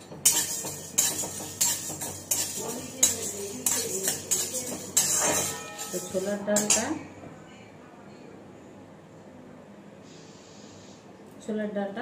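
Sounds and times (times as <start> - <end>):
dry lentils rattling against metal: 0.0 - 7.0
metal spatula scraping pan: 0.0 - 7.0.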